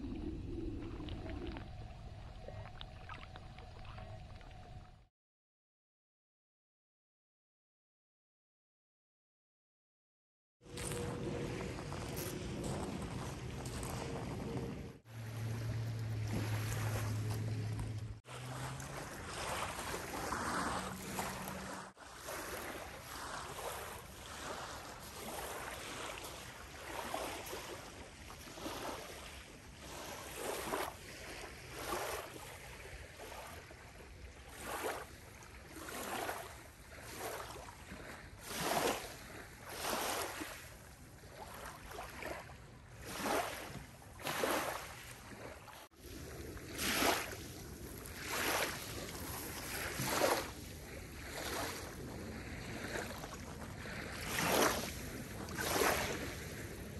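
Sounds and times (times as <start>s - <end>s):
wind on microphone: 0.0s - 5.0s, 10.7s - 18.2s
low steady hum: 0.0s - 5.1s
waves lapping on gravel shore: 10.6s - 56.9s.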